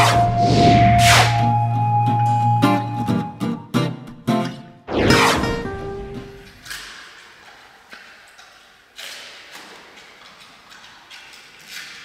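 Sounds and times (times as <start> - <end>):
panda chewing bamboo: 6.6 - 12.0.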